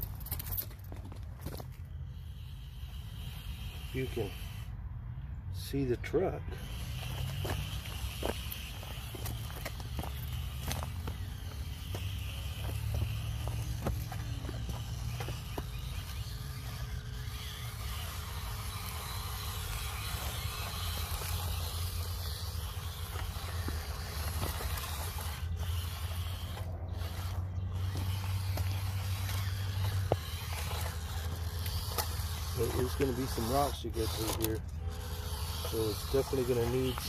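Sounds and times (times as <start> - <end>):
tyres on dirt and stones: 0.0 - 4.7, 5.5 - 37.0
small electric motor whirring: 0.0 - 37.0.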